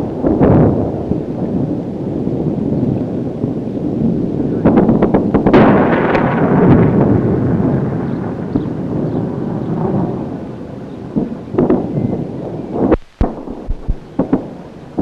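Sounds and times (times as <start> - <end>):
rolling rumble: 0.0 - 15.0
sharp blasts: 4.5 - 15.0
sharp cracks: 4.7 - 8.9, 11.1 - 12.0, 12.8 - 15.0.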